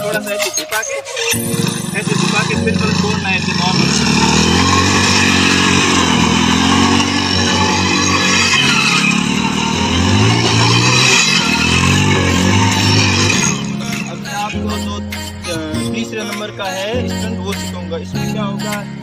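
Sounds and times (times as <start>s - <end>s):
motorcycle engine revving: 1.3s - 15.8s
wheel spinning in sand: 1.4s - 13.7s.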